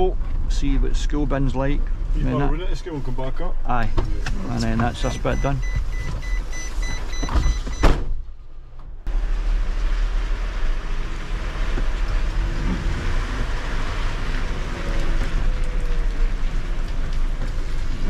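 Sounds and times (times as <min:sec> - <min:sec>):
diesel truck engine rumble: 0:08.3 - 0:18.0
tyres on wet road: 0:09.1 - 0:18.0.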